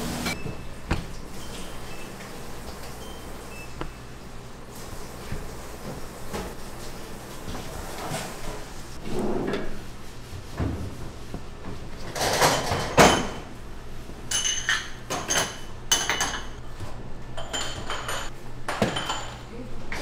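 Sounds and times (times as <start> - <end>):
kitchen knocks and scraping: 0.0 - 3.0, 5.1 - 6.6, 7.4 - 13.5, 14.3 - 19.4
utensils and dishes clinking: 12.0 - 13.5, 14.3 - 16.6, 17.4 - 19.5.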